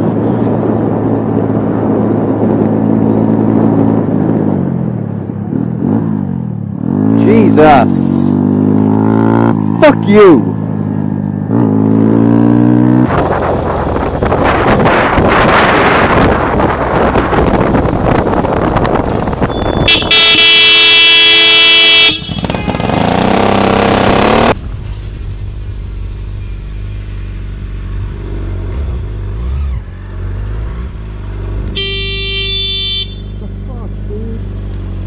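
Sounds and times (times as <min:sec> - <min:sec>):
motorcycle engine: 0:00.0 - 0:35.0
vehicle horn blasts: 0:19.5 - 0:23.2, 0:31.7 - 0:33.4.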